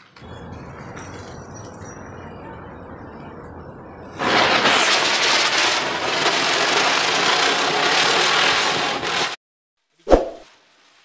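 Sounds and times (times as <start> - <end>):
firework spinner hissing: 4.1 - 9.4.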